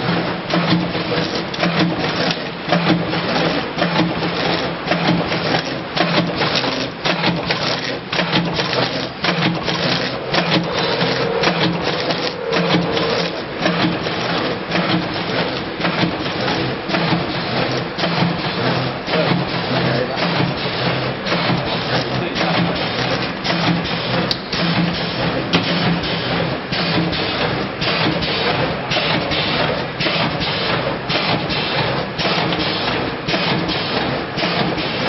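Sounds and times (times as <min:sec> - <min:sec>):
pulsing machine hum: 0:06.2 - 0:22.2.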